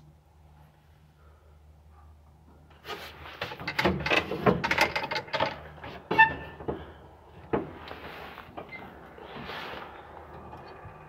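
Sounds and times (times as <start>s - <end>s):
irregular knocks and rattles: 3.4s - 7.9s.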